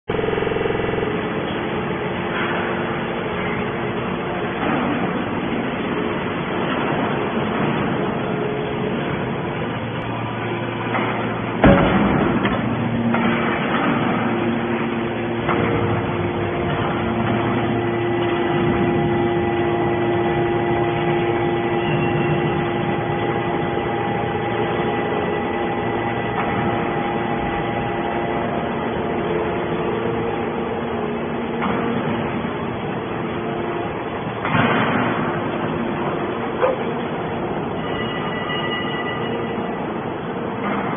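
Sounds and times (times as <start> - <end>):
hydraulic machine humming: 0.1 - 40.9
loud metal bang: 10.1 - 36.5.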